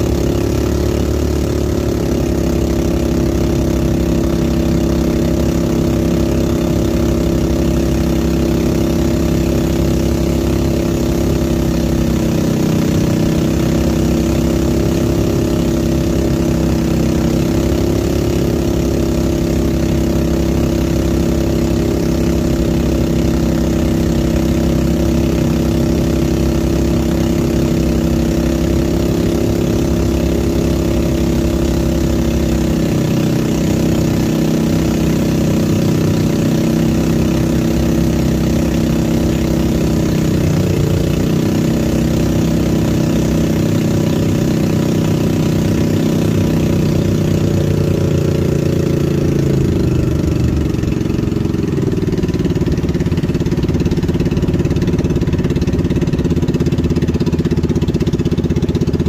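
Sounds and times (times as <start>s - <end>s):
small engine running: 0.0s - 59.0s.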